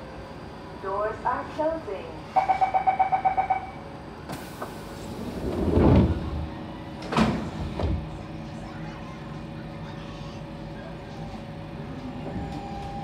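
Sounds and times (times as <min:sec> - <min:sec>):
train door chime beeps: 0:02.3 - 0:03.8, 0:12.2 - 0:13.0
train doors sliding shut: 0:04.2 - 0:08.3, 0:11.1 - 0:13.0.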